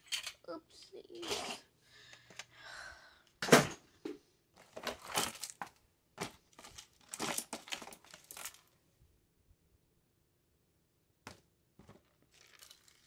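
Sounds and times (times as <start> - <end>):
rustling of handled objects: 0.0 - 2.5, 4.5 - 8.8, 11.8 - 13.0.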